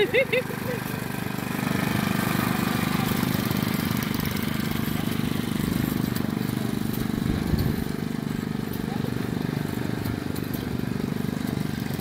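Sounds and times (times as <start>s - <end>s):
garden tractor engine running: 0.0s - 12.0s.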